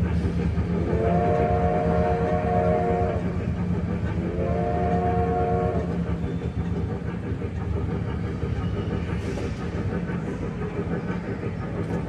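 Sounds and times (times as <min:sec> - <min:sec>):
electric train running hum: 0:00.0 - 0:12.0
train whistle chord: 0:00.9 - 0:03.2, 0:04.4 - 0:05.9.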